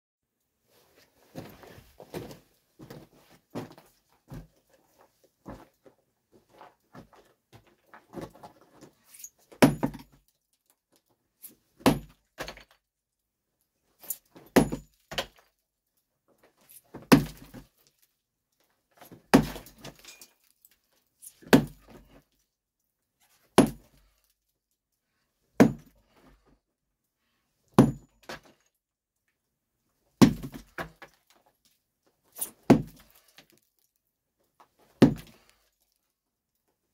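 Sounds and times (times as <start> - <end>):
light knocks and scuffing: 0.8 - 5.8
sledgehammer striking rock: 9.6 - 10.0, 11.8 - 12.6, 14.6 - 15.3, 17.1 - 17.6, 19.3 - 19.9, 21.5 - 22.0, 23.6 - 24.0, 25.6 - 26.0, 27.8 - 28.4, 30.2 - 30.8, 32.7 - 33.2, 35.0 - 35.4
small clink: 20.0 - 20.5.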